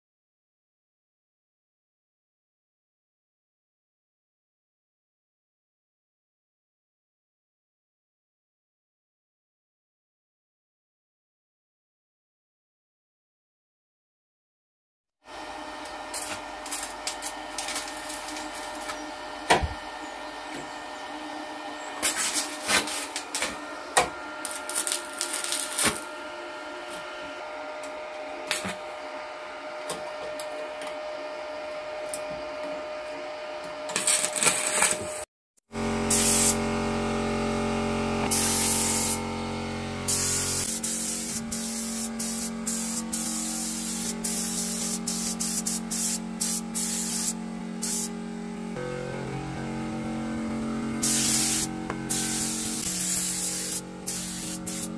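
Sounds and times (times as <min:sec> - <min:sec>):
steady welder hum: 0:15.3 - 0:54.9
welding arc crackling: 0:15.8 - 0:19.8, 0:22.0 - 0:27.0, 0:28.4 - 0:28.8, 0:33.9 - 0:35.2, 0:36.1 - 0:36.6, 0:38.3 - 0:39.2, 0:40.1 - 0:48.1, 0:51.0 - 0:54.9
paint spray gun hissing: 0:15.8 - 0:20.8, 0:22.0 - 0:26.2, 0:36.1 - 0:36.6, 0:38.3 - 0:39.2, 0:40.0 - 0:48.2, 0:51.0 - 0:54.9.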